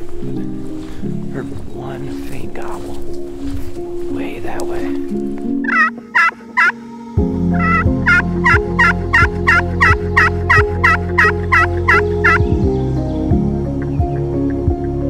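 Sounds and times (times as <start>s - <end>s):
soft background music: 0.0s - 15.0s
wild turkey yelping: 5.6s - 6.8s, 7.6s - 12.4s.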